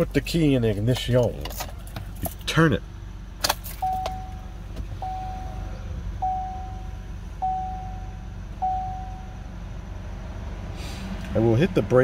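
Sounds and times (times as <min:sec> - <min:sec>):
car engine idling: 0:00.0 - 0:12.0
dashboard warning chime: 0:03.8 - 0:09.6.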